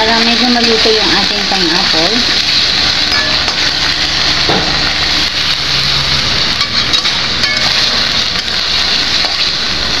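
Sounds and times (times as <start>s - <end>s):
vegetables sizzling in hot oil: 0.0s - 10.0s
metal spoon scraping wok: 5.6s - 10.0s.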